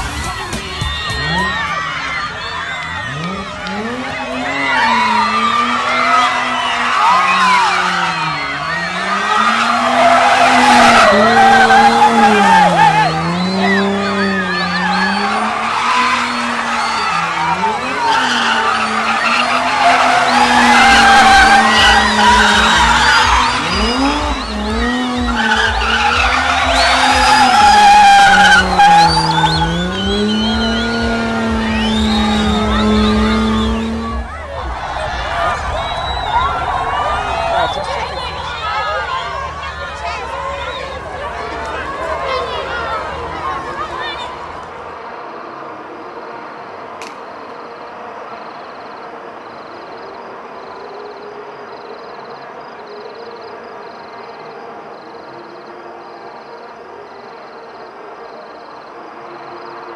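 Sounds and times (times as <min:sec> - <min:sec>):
tyres squealing: 0:00.0 - 0:44.9
car engines revving high: 0:00.0 - 0:49.7.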